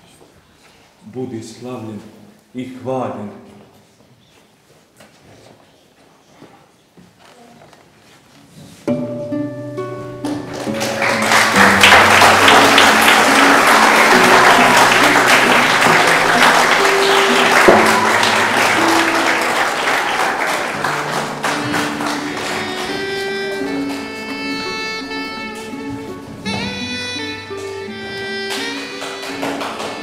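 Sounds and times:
instrumental background music: 8.9s - 30.0s
audience applauding: 10.2s - 26.8s, 27.5s - 30.0s.

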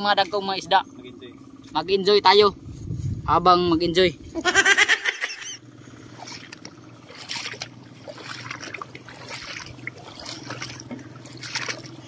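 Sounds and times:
feet wading through shallow water: 5.6s - 12.0s.

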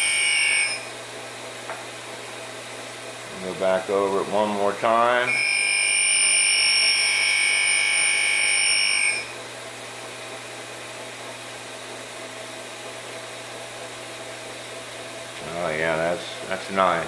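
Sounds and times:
grinding wheel high-pitched whine: 0.0s - 0.9s, 3.3s - 9.4s
grinder low hum: 0.0s - 17.0s.

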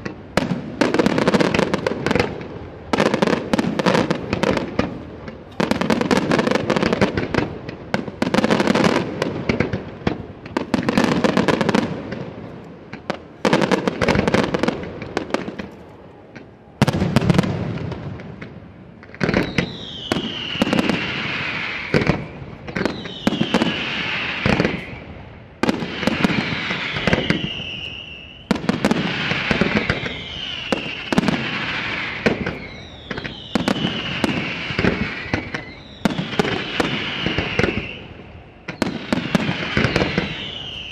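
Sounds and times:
firework bangs: 0.0s - 40.9s
firework crackling: 0.0s - 40.9s
falling firework whistles: 19.2s - 40.9s.

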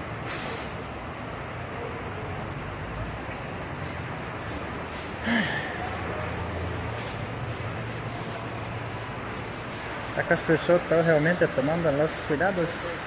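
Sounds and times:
store background hum: 0.0s - 13.0s
spray bottle hiss: 0.2s - 0.9s, 4.0s - 11.1s.

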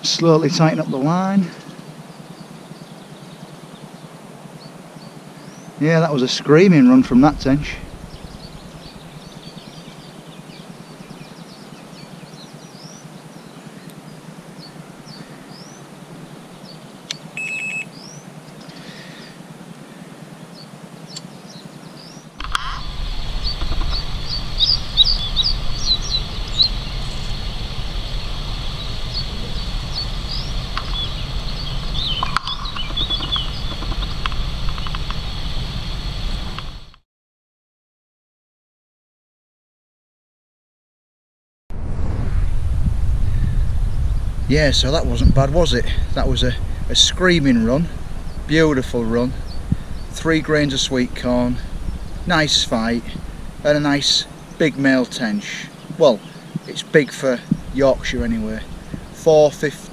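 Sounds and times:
small birds chirping: 0.0s - 37.0s, 43.2s - 59.9s
low steady rumble: 3.0s - 36.9s, 41.7s - 56.0s, 57.4s - 59.9s
short high beep: 17.4s - 17.9s.

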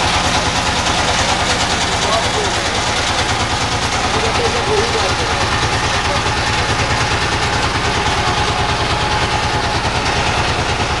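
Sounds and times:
boat engine throbbing: 0.0s - 11.0s.

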